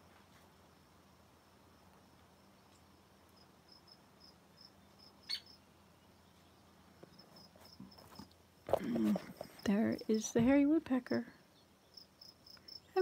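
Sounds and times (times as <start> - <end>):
faint high-pitched chirps: 4.6 - 6.5.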